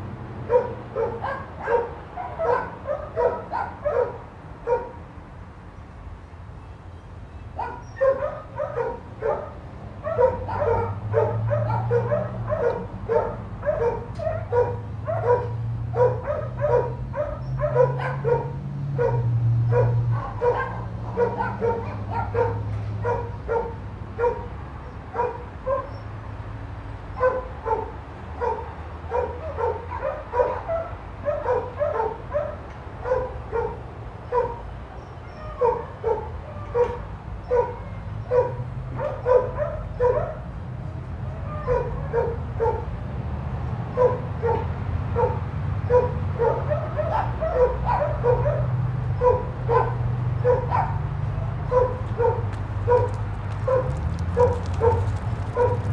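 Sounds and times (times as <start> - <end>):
dog barking: 0.4 - 5.0, 7.6 - 26.0, 27.1 - 34.6, 35.4 - 40.5, 41.2 - 42.9, 43.9 - 55.9.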